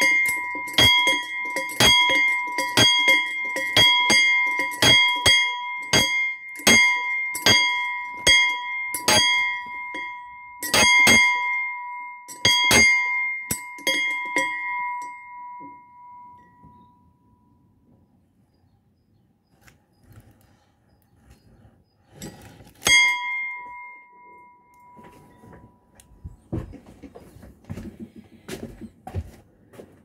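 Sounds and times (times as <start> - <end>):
struck metal object ringing: 0.0 - 17.1, 22.8 - 26.0.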